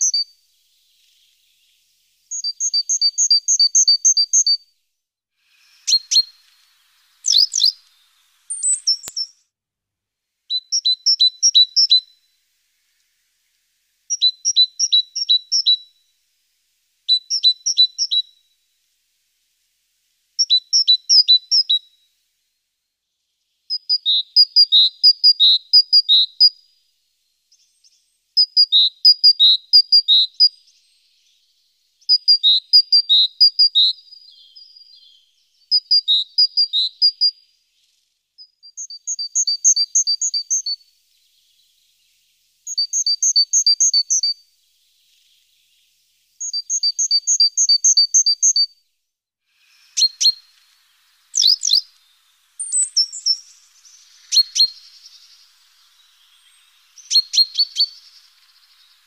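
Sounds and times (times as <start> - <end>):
great tit singing: 0.0 - 4.6, 5.6 - 9.4, 10.5 - 12.1, 14.1 - 15.8, 17.1 - 18.3, 27.5 - 48.7, 49.7 - 59.0.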